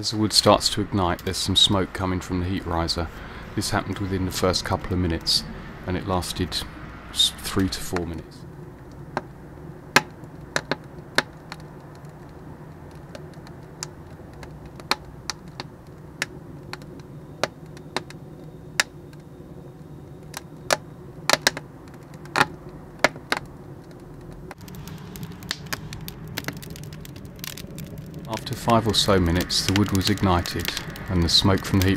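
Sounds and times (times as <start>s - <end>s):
kindling crackling and snapping: 0.0s - 31.9s
low rumble: 0.0s - 31.9s.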